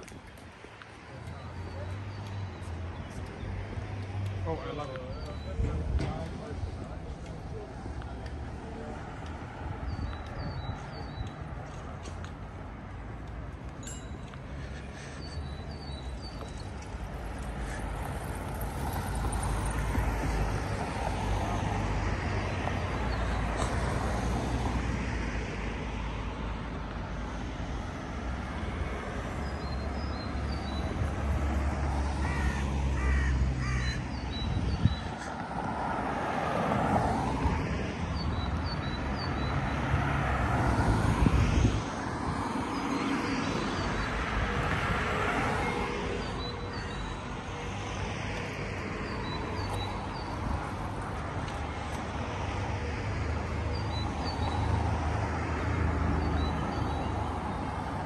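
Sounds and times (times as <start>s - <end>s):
traffic rumble: 0.0s - 58.0s
crow cawing: 32.2s - 34.0s.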